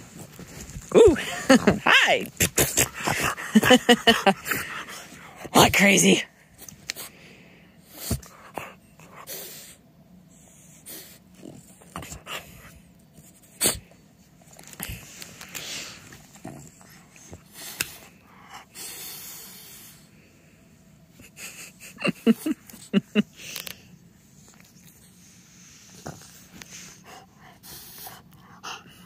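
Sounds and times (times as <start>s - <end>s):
dog snorting and sneezing: 1.5s - 5.1s, 7.9s - 9.8s, 13.4s - 13.9s.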